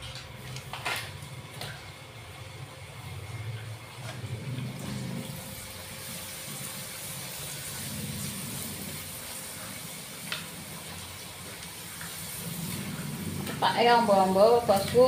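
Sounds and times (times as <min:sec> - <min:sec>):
oil sizzling in a wok: 0:05.3 - 0:15.0.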